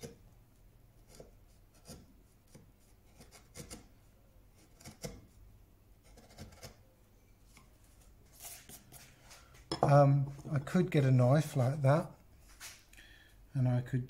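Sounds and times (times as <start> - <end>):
chisel scraping wood: 1.0 - 3.9, 4.6 - 5.4, 6.0 - 6.8.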